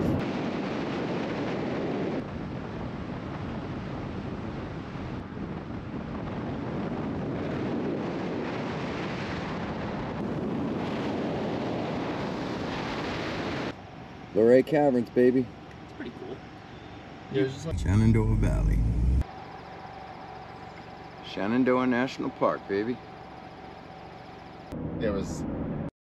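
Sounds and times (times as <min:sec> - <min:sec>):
wind noise on microphone: 0:00.0 - 0:13.7
car driving rumble: 0:17.5 - 0:19.3.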